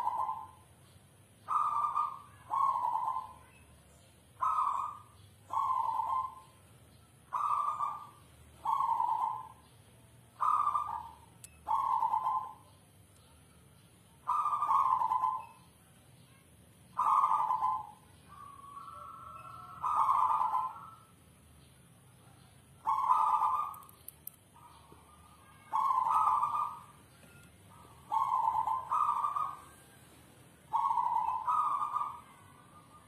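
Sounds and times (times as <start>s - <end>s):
dove cooing: 0.0s - 0.7s, 1.4s - 3.4s, 4.4s - 6.6s, 7.3s - 9.6s, 10.4s - 12.7s, 14.2s - 15.6s, 17.0s - 21.2s, 22.8s - 23.9s, 24.6s - 27.1s, 27.7s - 33.0s.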